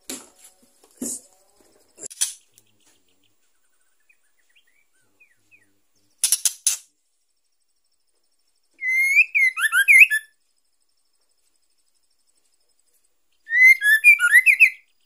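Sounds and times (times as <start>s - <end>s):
bird whistled notes: 8.8s - 10.3s, 13.4s - 14.9s.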